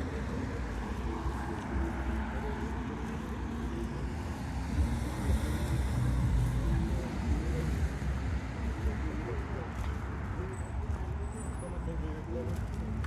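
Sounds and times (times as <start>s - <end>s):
cars driving on road: 0.0s - 13.0s.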